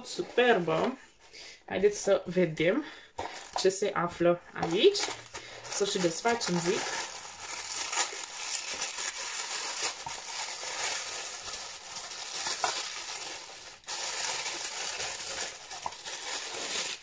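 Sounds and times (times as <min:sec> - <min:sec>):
tissue paper rustling: 0:04.7 - 0:17.0.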